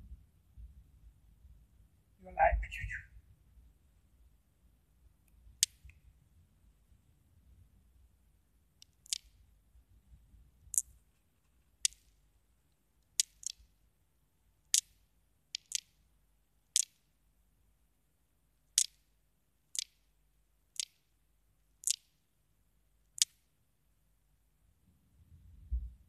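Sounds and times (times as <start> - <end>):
faint low hum: 0.0 - 26.0
sharp high ticks: 5.6 - 6.0, 8.8 - 9.4, 11.8 - 12.2, 13.0 - 13.7, 14.7 - 16.1, 16.7 - 17.1, 18.7 - 19.1, 19.7 - 20.1, 20.7 - 21.1, 21.8 - 22.2, 23.2 - 23.5.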